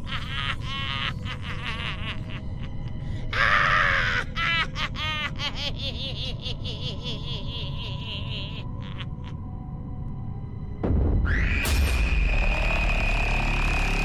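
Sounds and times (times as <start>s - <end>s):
people laughing: 0.0s - 3.0s, 4.2s - 9.4s
steady background drone: 0.0s - 14.0s.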